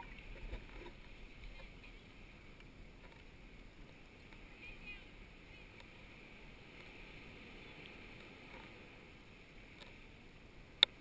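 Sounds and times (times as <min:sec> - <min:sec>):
muffled wash of sea water: 0:00.0 - 0:11.0
faint ticks: 0:09.7 - 0:10.0, 0:10.8 - 0:11.0.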